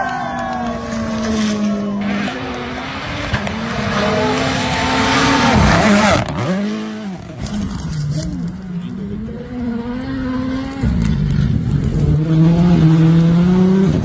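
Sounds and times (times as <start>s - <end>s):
rally car passing at speed: 0.7s - 14.0s.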